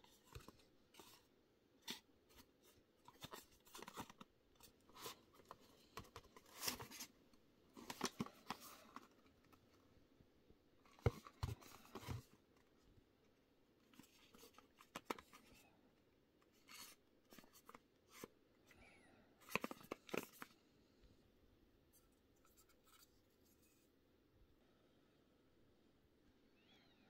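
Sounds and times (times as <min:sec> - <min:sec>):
hands handling boxes and jar: 0:00.0 - 0:09.7, 0:10.8 - 0:12.4, 0:19.4 - 0:20.6.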